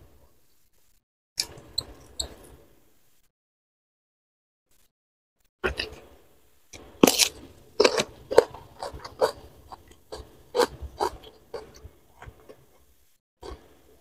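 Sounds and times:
crunchy cucumber chewing: 7.0s - 13.7s.

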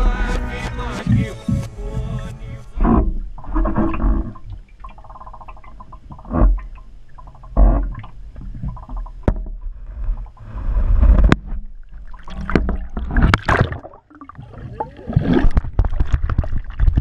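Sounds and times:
muffled underwater gurgling: 0.9s - 17.0s.

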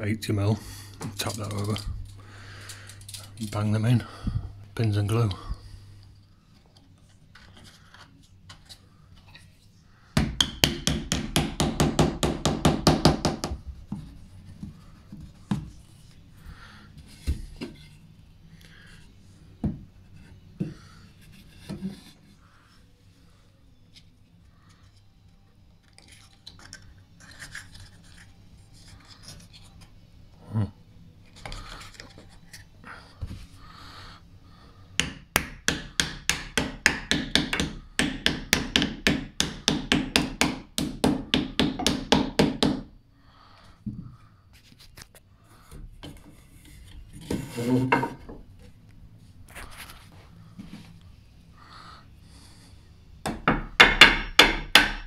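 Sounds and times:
hammer tapping wood: 10.2s - 13.6s, 35.0s - 42.9s, 53.3s - 55.0s
wood scraping: 46.1s - 48.4s.

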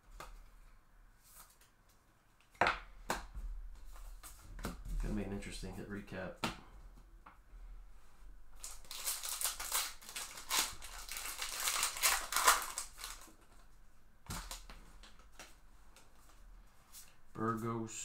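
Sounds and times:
foil wrapper crinkling: 8.6s - 13.6s.

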